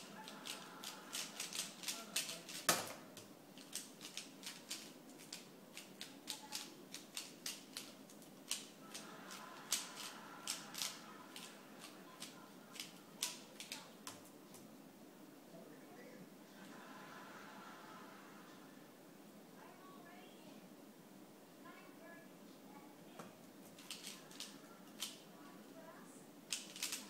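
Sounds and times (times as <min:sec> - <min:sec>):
puzzle cube clicking: 0:00.4 - 0:14.3, 0:23.8 - 0:25.2, 0:26.5 - 0:27.0.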